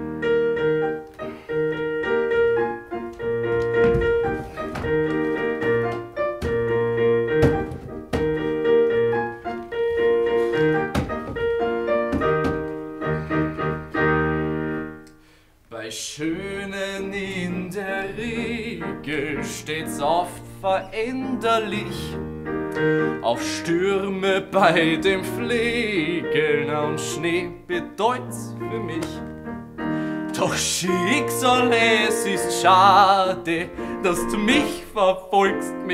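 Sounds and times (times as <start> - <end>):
solo piano: 0.0 - 15.1, 16.1 - 35.9
man singing: 15.7 - 22.2, 23.0 - 29.3, 30.3 - 35.9.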